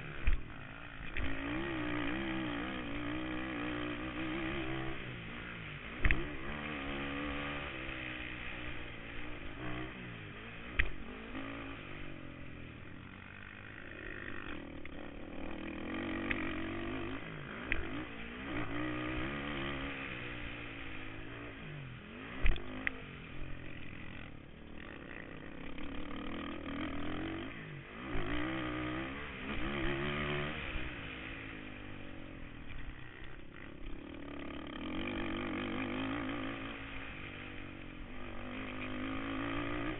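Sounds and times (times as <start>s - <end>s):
quad engine revving: 0.0s - 39.9s.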